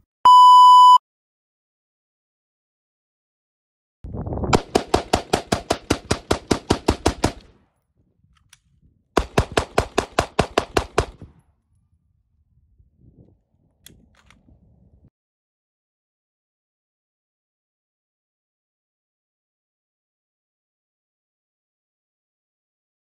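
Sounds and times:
rapid handgun gunfire: 4.6 - 7.5, 9.2 - 11.3.

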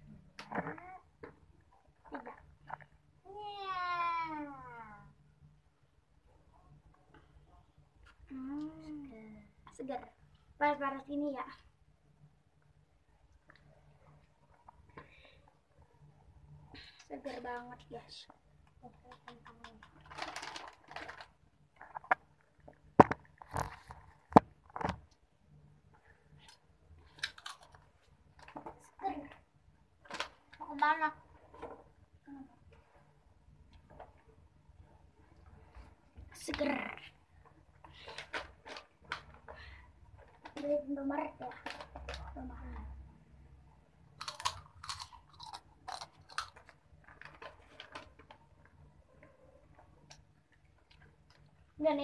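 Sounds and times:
crunchy food chewing: 44.2 - 47.6.

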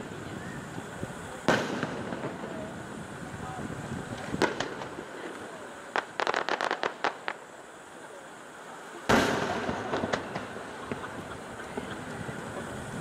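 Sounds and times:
firework pops and cracks: 0.0 - 3.0, 3.8 - 7.6, 9.0 - 12.2.

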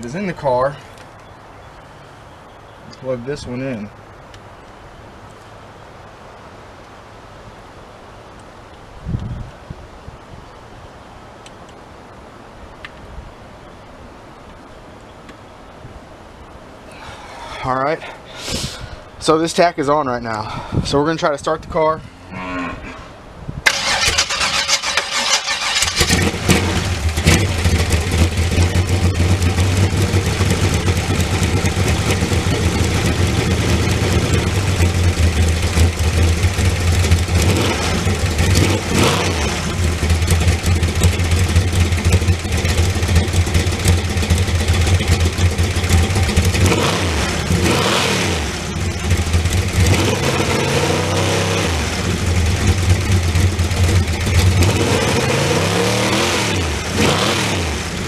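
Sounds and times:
engine starter cranking: 23.7 - 37.5
car engine running and revving: 25.9 - 58.0.

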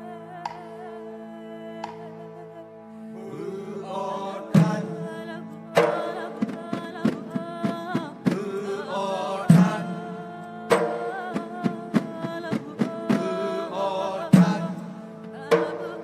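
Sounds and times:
wavering vocal melody: 0.0 - 16.0
frame drums beating: 10.7 - 13.3, 15.5 - 16.0.

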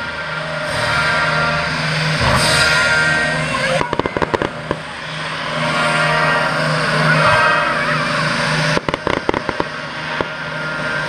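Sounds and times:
fireworks cracking: 3.6 - 5.7, 8.7 - 10.4.

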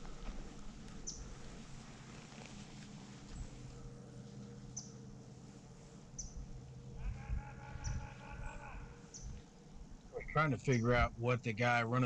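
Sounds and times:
bird chirping: 1.0 - 1.3, 4.7 - 5.0, 6.1 - 6.4, 7.0 - 9.4.

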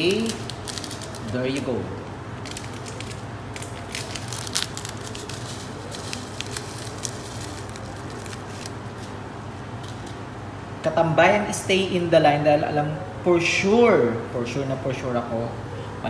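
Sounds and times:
seasoning shaker shaking: 2.5 - 9.2.

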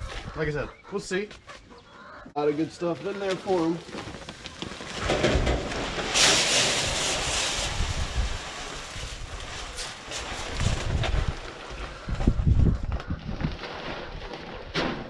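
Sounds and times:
grain pouring into metal can: 4.8 - 11.0.

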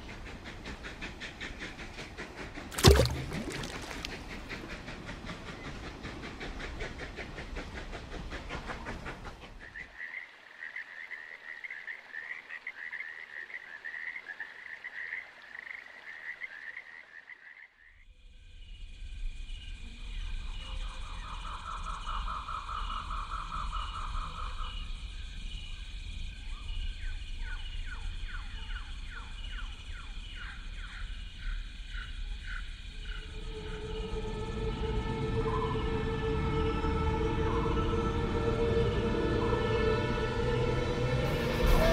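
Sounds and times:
frogs calling: 0.0 - 7.8, 9.6 - 18.1, 19.4 - 34.7.

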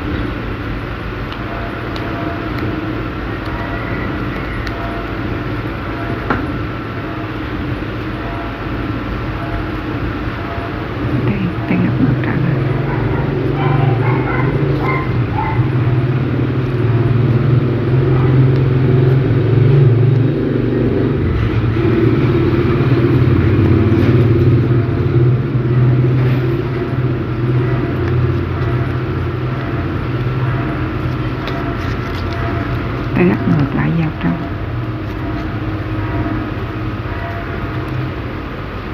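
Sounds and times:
low motor-like rumble: 0.0 - 38.9
paper crinkling: 27.9 - 33.2.

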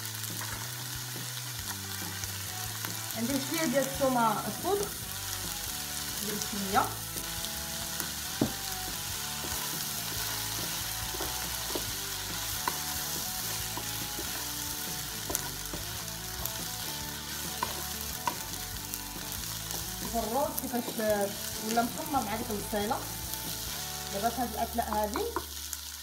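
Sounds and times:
food sizzling in a frying pan: 0.0 - 26.0
wooden spatula scraping a pan: 8.3 - 23.0.

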